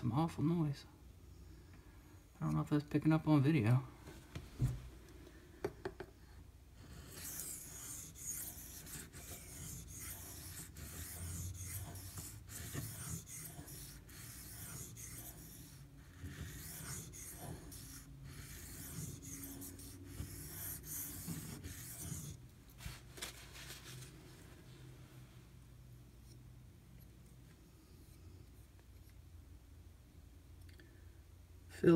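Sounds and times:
knife sharpening on whetstone: 0:06.8 - 0:22.4.

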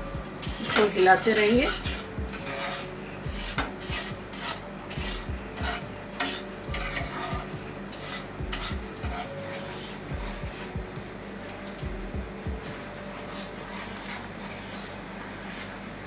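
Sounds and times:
sugar grains grating: 0:00.0 - 0:10.8, 0:12.7 - 0:15.8
spatula scraping pan bottom: 0:00.4 - 0:10.0.

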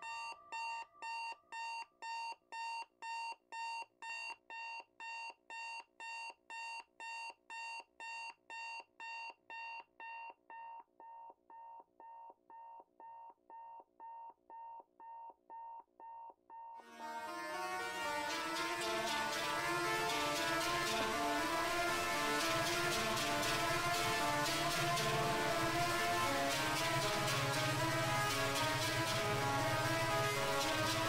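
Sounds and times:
alarm clock beeping: 0:00.0 - 0:11.2.

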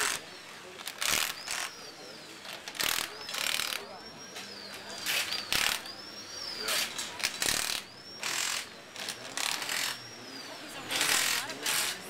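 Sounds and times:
impact wrench bursts: 0:00.0 - 0:01.8, 0:02.4 - 0:03.9, 0:04.9 - 0:06.0, 0:06.6 - 0:10.1, 0:10.9 - 0:12.0.

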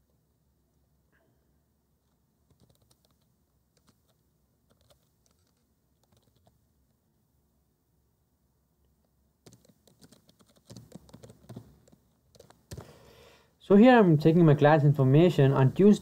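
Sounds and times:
keyboard typing: 0:02.0 - 0:06.6, 0:09.4 - 0:13.0.

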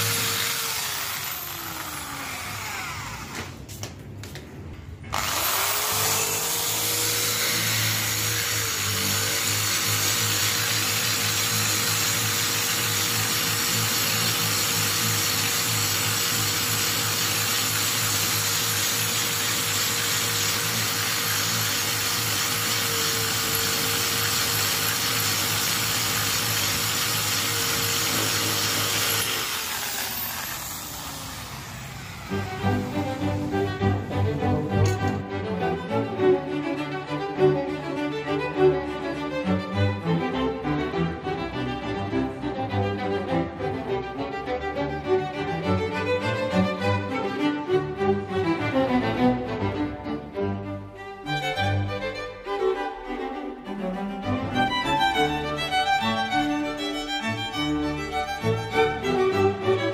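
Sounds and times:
electric drill whining: 0:00.0 - 0:03.7, 0:05.0 - 0:34.1.

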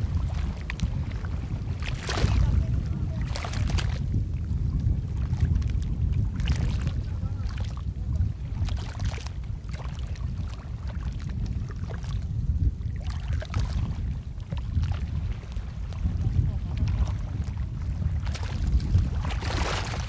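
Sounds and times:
paddle splashing in water: 0:00.0 - 0:04.1, 0:08.5 - 0:12.2, 0:12.9 - 0:20.0
wind on microphone: 0:00.0 - 0:20.0.

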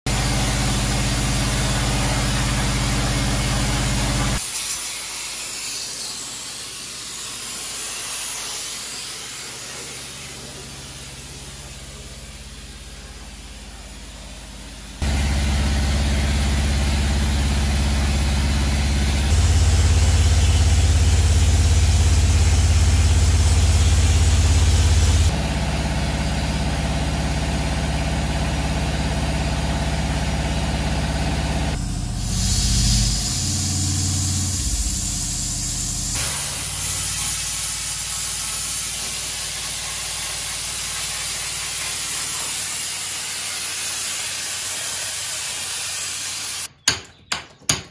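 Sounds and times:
sandblasting hiss: 0:02.0 - 0:13.6, 0:19.2 - 0:25.3, 0:31.8 - 0:46.7
engine humming: 0:11.0 - 0:36.2.

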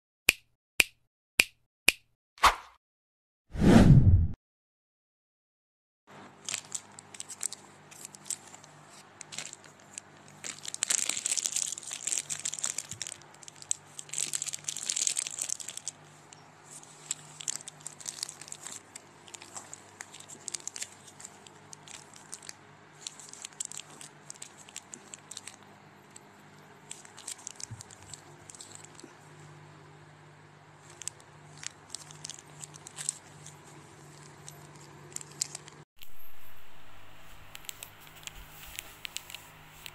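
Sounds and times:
plastic wrappers crinkling: 0:06.2 - 0:29.4, 0:30.8 - 0:36.2, 0:37.3 - 0:39.9.

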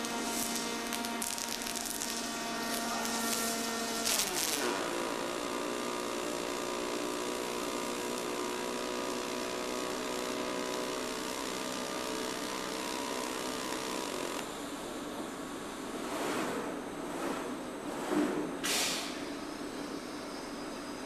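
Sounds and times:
falling whine: 0:00.0 - 0:06.7
arc welding hiss: 0:00.0 - 0:14.5
welding crackle: 0:00.0 - 0:14.5
machine hum: 0:00.0 - 0:21.0.

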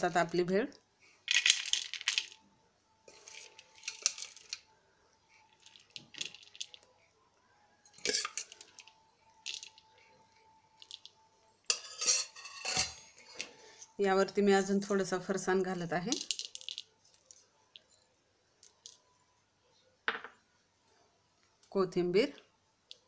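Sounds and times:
metal spoon scraping a pot: 0:03.1 - 0:04.6, 0:07.9 - 0:08.9, 0:11.6 - 0:14.0
puffed rice rustling: 0:03.1 - 0:04.7, 0:05.3 - 0:06.9.

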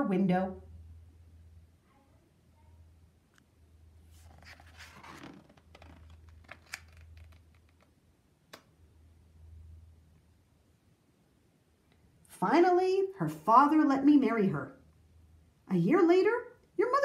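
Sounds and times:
low steady hum: 0:00.0 - 0:17.0
paper page rustling: 0:04.1 - 0:07.9.

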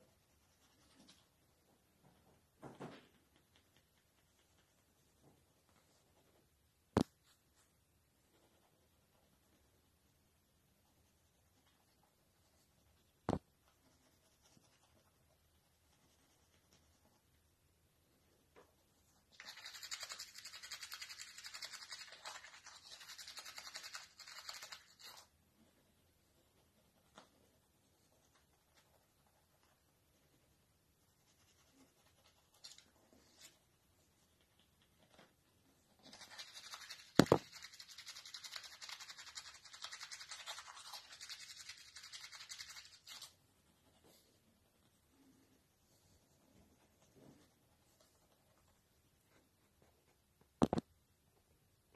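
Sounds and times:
toothbrush scrubbing teeth: 0:19.4 - 0:25.3, 0:36.1 - 0:43.3.

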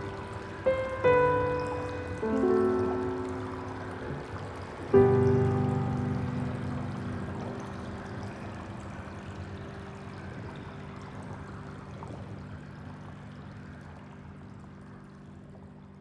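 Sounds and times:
sustained music chord: 0:00.0 - 0:11.9.

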